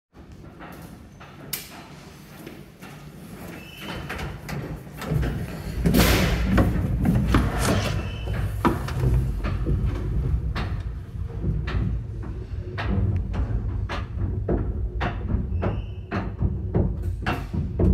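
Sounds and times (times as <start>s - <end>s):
lift mechanism rumbling: 0.2s - 17.9s.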